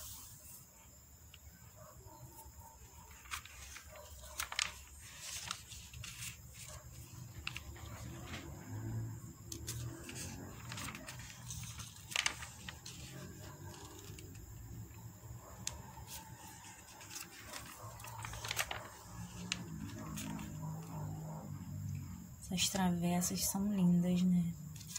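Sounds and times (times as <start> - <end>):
low background hum: 0.7 - 24.9
paper pages rustling: 2.8 - 21.2, 24.1 - 24.9.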